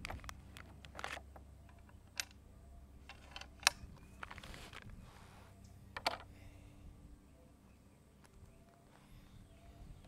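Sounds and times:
air rifle clicks: 3.0s - 4.9s
brief rustle: 3.1s - 6.2s.

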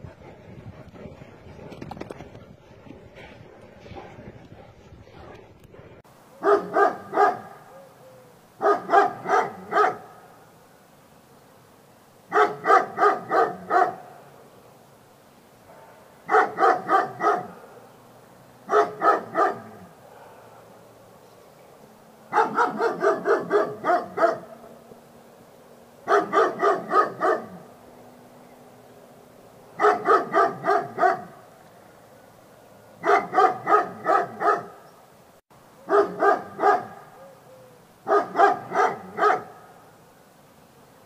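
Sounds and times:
dog barking: 6.4s - 7.8s, 8.6s - 10.3s, 12.3s - 14.1s, 15.7s - 17.9s, 18.7s - 21.2s, 22.3s - 24.6s, 26.0s - 27.7s, 29.8s - 31.4s, 33.0s - 34.9s, 35.9s - 37.4s, 38.0s - 39.7s.

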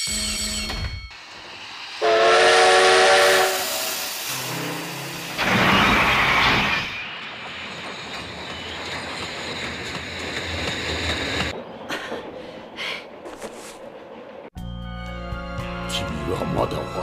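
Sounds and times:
steam train running: 0.0s - 14.5s
rush of steam: 1.2s - 8.0s
steam whistle: 2.0s - 4.9s.

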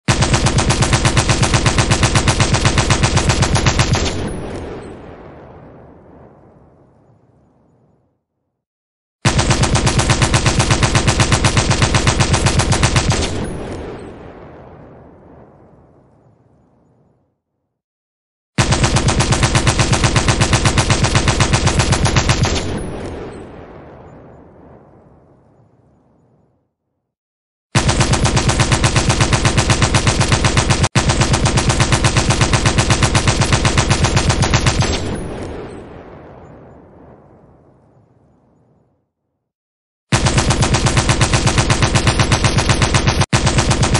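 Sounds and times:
machine gun burst: 0.1s - 4.9s, 9.3s - 14.1s, 18.6s - 23.4s, 27.8s - 35.8s, 40.2s - 43.9s
gunfire echo: 0.1s - 6.5s, 9.2s - 16.1s, 18.6s - 25.5s, 27.8s - 37.8s, 40.1s - 43.9s.

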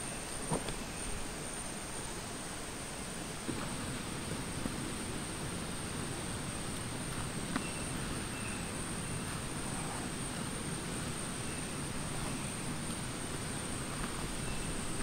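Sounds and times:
high insect drone: 0.0s - 15.0s
faint chirps: 6.6s - 15.0s.

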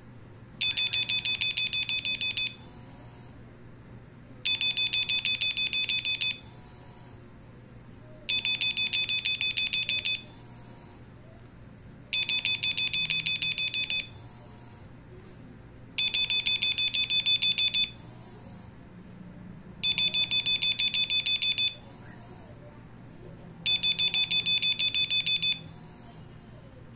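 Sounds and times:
phone alarm beeping: 0.6s - 2.7s, 4.5s - 6.5s, 8.3s - 10.4s, 12.1s - 14.2s, 16.0s - 18.1s, 19.8s - 21.9s, 23.6s - 25.8s.

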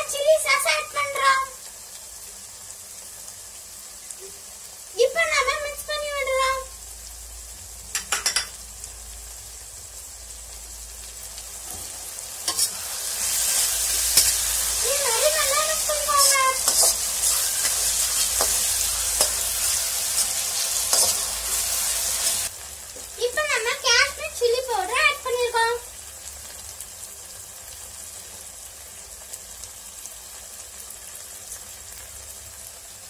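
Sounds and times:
vegetables sizzling in a pan: 0.0s - 33.0s
metal spatula scraping a pan: 11.7s - 22.5s.

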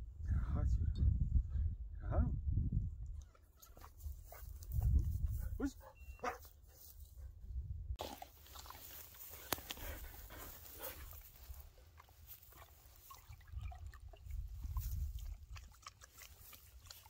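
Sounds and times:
wind rumble on microphone: 0.0s - 5.8s, 7.1s - 8.0s, 13.4s - 15.8s
dog panting: 5.2s - 7.3s, 9.2s - 12.6s
water pouring into bowl: 12.8s - 17.0s.

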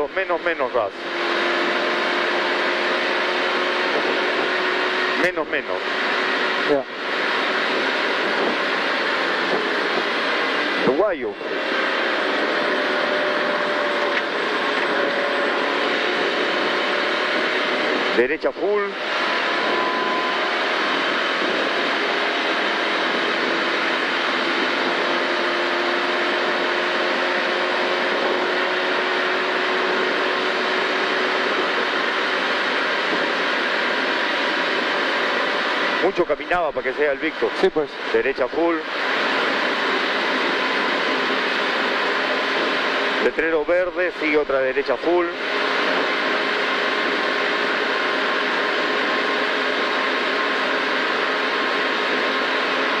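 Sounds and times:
car engine at full throttle: 0.0s - 53.0s
wind rush: 1.0s - 53.0s.

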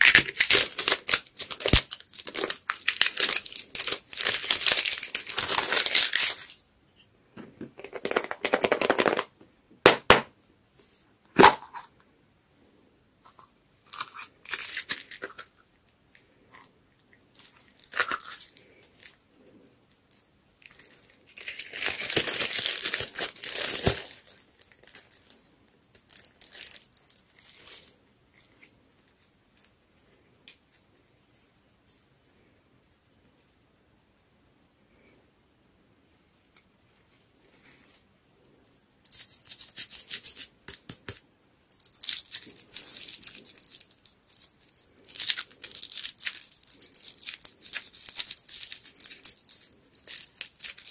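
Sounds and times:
plastic wrapper crinkling and tearing: 0.0s - 6.6s, 7.8s - 9.3s, 13.8s - 15.6s, 17.3s - 19.2s, 20.0s - 29.8s, 39.0s - 50.9s.

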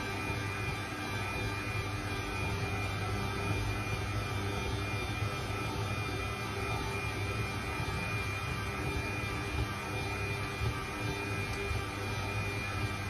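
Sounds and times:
stand mixer motor hum: 0.0s - 13.0s.

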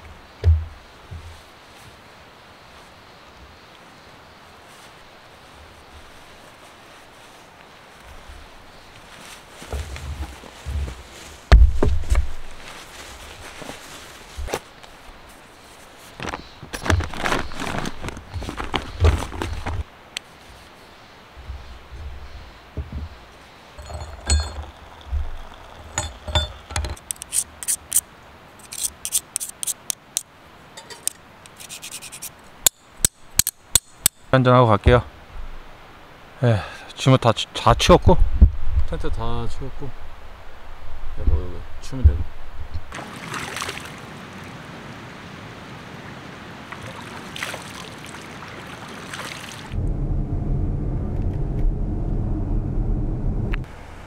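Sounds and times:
outdoor hiss: 0.0s - 49.8s, 53.6s - 54.0s
rustles and clatters: 4.7s - 20.8s, 21.4s - 28.0s
plastic stakes clicking and scraping: 23.8s - 28.0s, 28.6s - 34.2s
low vehicle rumble: 49.7s - 54.0s.

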